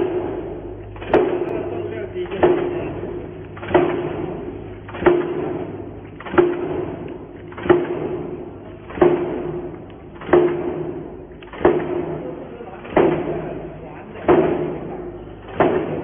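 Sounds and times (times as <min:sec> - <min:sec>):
stamping press metallic strikes: 0:00.0 - 0:16.0.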